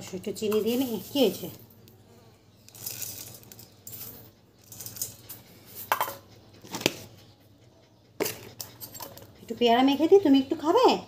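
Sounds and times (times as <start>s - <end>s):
hand mixing fruit rustles: 0.4s - 1.6s, 2.7s - 5.9s
clinks against metal bowl: 5.9s - 6.3s.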